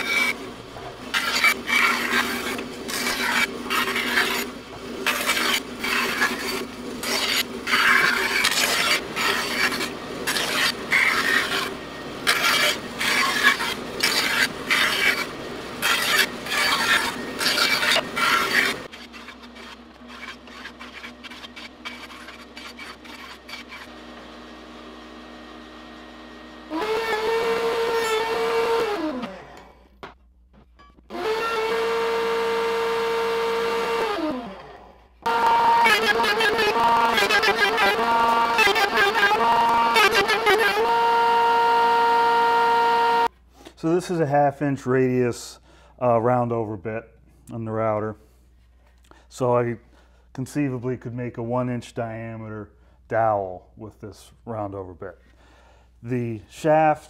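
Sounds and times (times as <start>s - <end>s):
bandsaw cutting wood: 0.0s - 29.8s, 31.1s - 43.3s
router whine: 0.0s - 30.2s, 31.1s - 43.3s.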